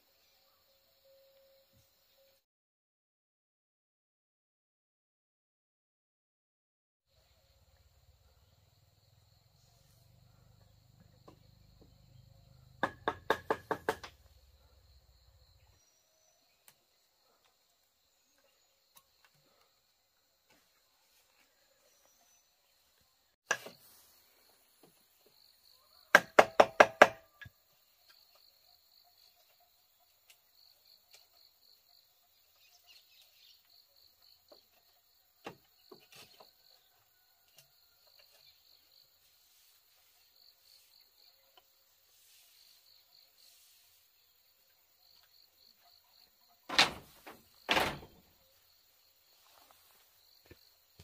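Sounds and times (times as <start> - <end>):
sharp knocks: 12.8 - 14.2, 26.2 - 27.2.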